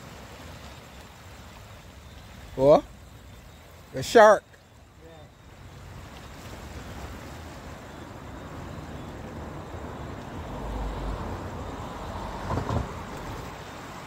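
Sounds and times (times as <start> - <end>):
sea surf on rocky shore: 0.0 - 14.0
wind on microphone: 6.6 - 13.6.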